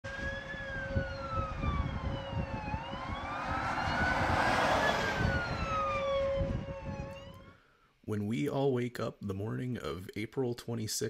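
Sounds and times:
siren wailing: 0:00.0 - 0:07.6
steady siren tone: 0:00.0 - 0:07.6
low gusty rumble: 0:00.1 - 0:07.6.

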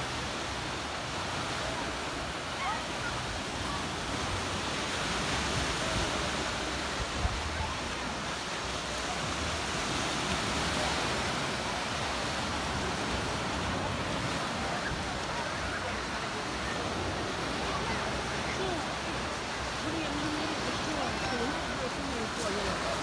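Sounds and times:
sea waves breaking on shore: 0:00.0 - 0:23.0.

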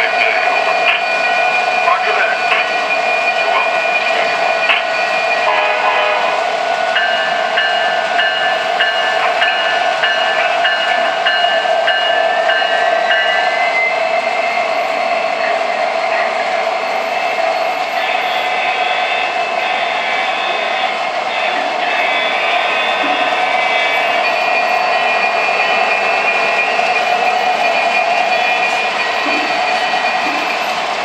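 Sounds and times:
locomotive bell ringing: 0:00.0 - 0:31.0
model locomotive horn chord: 0:05.5 - 0:06.4.

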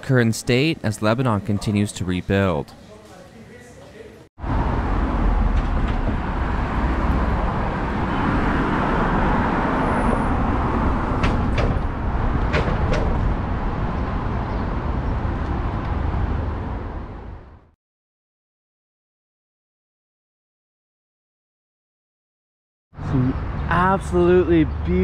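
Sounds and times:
traffic rumble: 0:04.4 - 0:17.8, 0:23.0 - 0:25.0.

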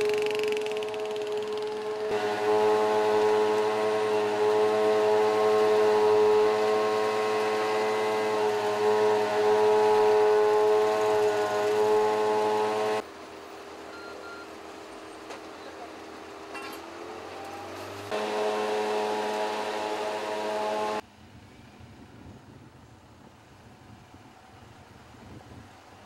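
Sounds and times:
vacuum pump whine: 0:00.0 - 0:13.0, 0:18.1 - 0:21.0.

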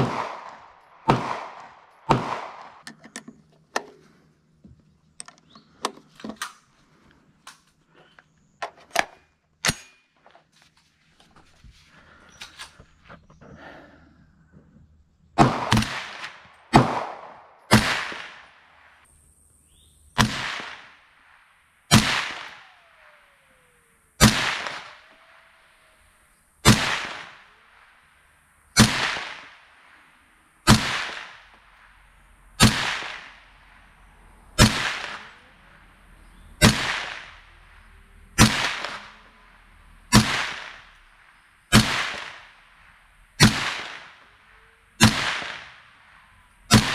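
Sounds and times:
rifle shots with echo: 0:00.0 - 0:02.8, 0:15.4 - 0:19.0, 0:20.2 - 0:25.8, 0:26.6 - 0:28.0, 0:28.8 - 0:32.0, 0:32.6 - 0:34.0, 0:34.6 - 0:35.9, 0:36.6 - 0:46.9.

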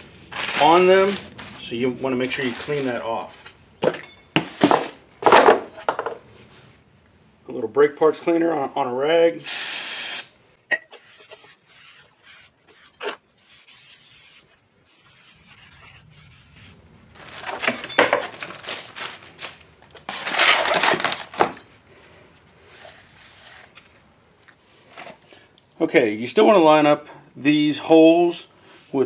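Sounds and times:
rag rubbing on metal rotor: 0:10.8 - 0:16.8.

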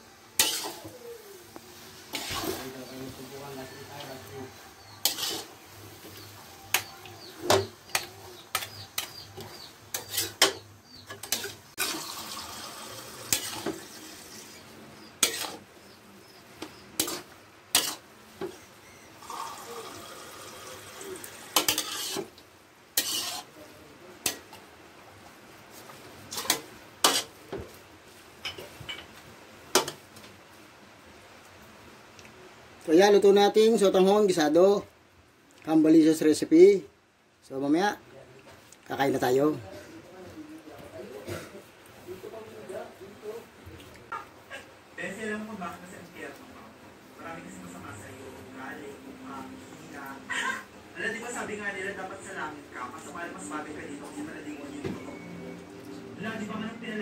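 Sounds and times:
metal spatula scraping a wok: 0:00.4 - 0:00.9, 0:02.0 - 0:03.0, 0:04.8 - 0:12.3, 0:13.3 - 0:15.7, 0:17.0 - 0:18.1, 0:21.5 - 0:22.4, 0:23.0 - 0:23.6, 0:26.3 - 0:27.4.

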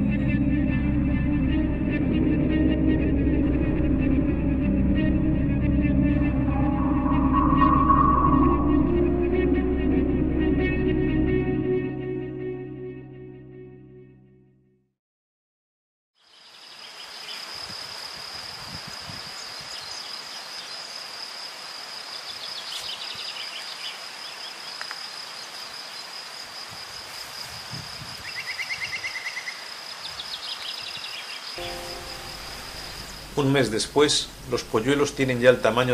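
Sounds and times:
background music: 0:00.0 - 0:14.6, 0:31.6 - 0:35.0
high-pitched insect trill: 0:16.2 - 0:33.6.

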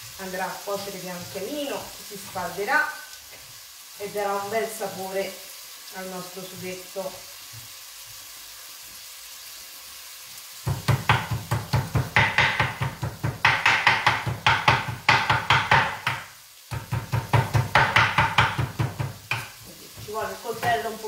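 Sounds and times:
frying sizzle: 0:00.0 - 0:21.0
knife chopping on wooden board: 0:10.7 - 0:20.8.

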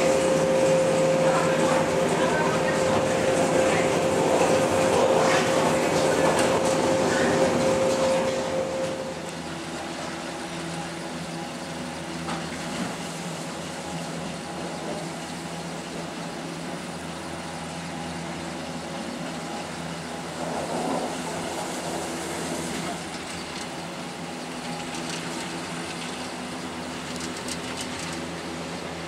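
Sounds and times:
gondola lift mechanical hum: 0:00.0 - 0:29.0.

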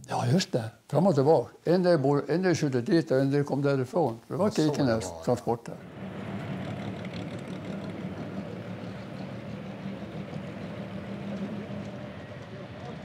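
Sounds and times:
truck engine droning: 0:05.8 - 0:13.0.

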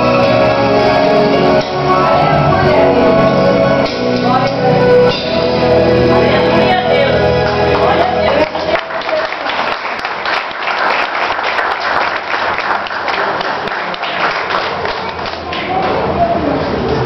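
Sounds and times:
music: 0:00.0 - 0:10.6
audience clapping: 0:08.3 - 0:15.8.

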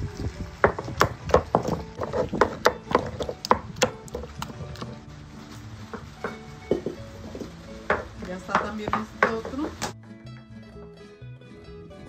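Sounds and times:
stone mortar and pestle knocking: 0:00.6 - 0:05.0, 0:05.9 - 0:10.0.

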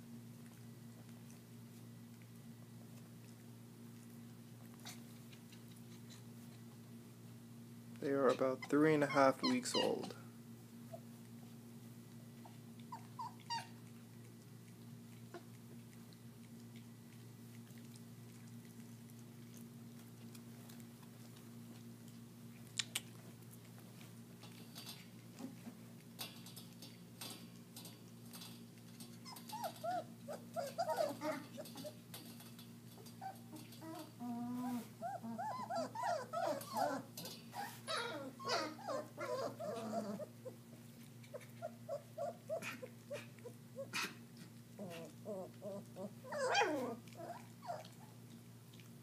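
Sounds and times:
puppies chewing meat: 0:00.0 - 0:49.0
steady low hum: 0:00.0 - 0:49.0
puppies whimpering and squeaking: 0:08.0 - 0:10.2, 0:12.4 - 0:14.0, 0:28.3 - 0:44.1, 0:44.8 - 0:48.3.

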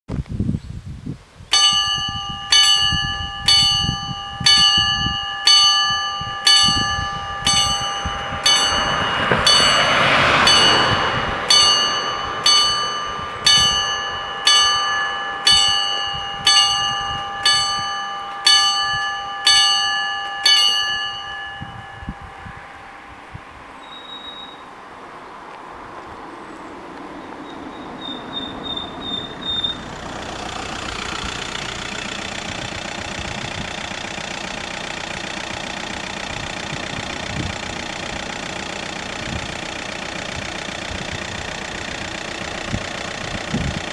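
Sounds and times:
level crossing bell ringing: 0:01.5 - 0:24.7
rushing noise: 0:01.6 - 0:34.4.

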